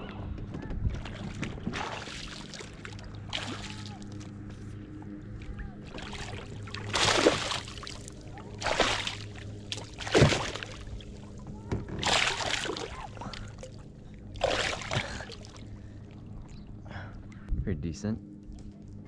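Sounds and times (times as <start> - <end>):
low hum: 0.0 - 19.0
water splashing: 1.0 - 4.5, 5.3 - 16.6.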